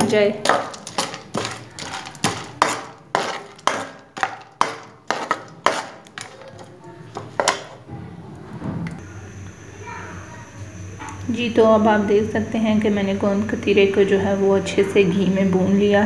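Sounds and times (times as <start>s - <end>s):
frying in oil: 0.4s - 7.4s
steel spoon scraping a steel pot: 0.5s - 6.7s.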